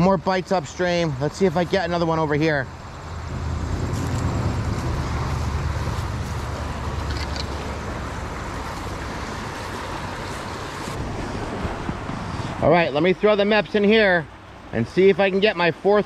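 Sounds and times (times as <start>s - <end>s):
wind rumble on microphone: 10.4s - 12.7s.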